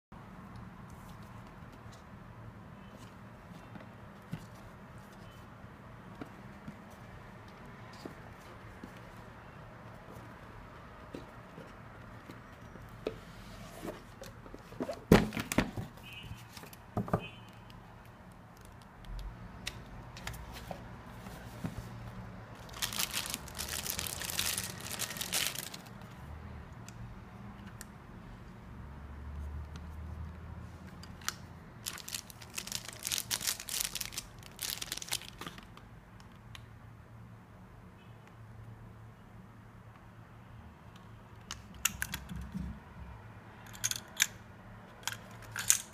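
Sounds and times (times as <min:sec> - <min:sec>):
plastic wrapping crinkling and tearing: 0:22.6 - 0:25.9, 0:31.8 - 0:35.7.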